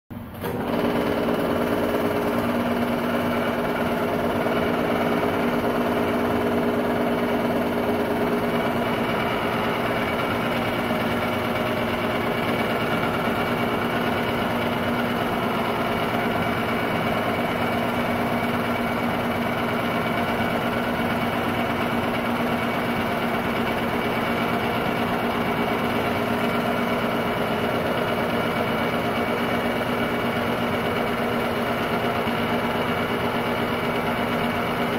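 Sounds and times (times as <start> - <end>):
film transport whirr: 0.2 - 34.9
projector motor and fan hum: 0.2 - 34.9.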